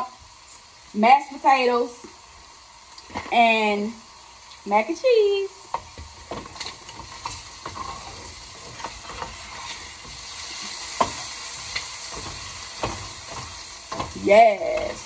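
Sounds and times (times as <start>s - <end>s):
shrimp sizzling in a frying pan: 0.0s - 15.0s
utensil scraping against pan: 6.2s - 15.0s.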